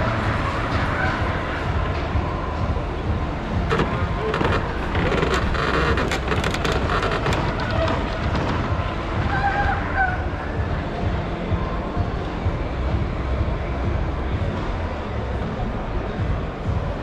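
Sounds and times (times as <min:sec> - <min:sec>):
murmur of crowd voices: 0:00.0 - 0:17.0
clicks and clatter: 0:03.6 - 0:08.9.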